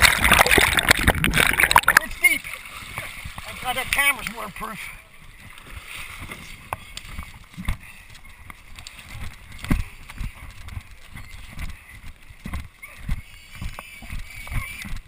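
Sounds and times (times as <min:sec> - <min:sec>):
footsteps running through dry leaves: 0:07.8 - 0:14.8.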